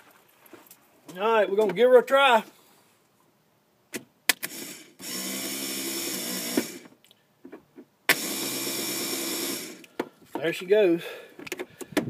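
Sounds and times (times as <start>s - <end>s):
starter motor whirring hum: 4.4s - 6.9s, 8.1s - 9.9s.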